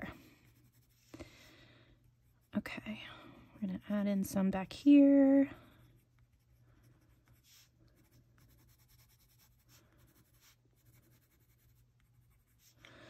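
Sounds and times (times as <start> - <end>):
low steady hum: 0.0 - 13.0
marker scratching on paper: 0.4 - 1.1, 5.6 - 12.8.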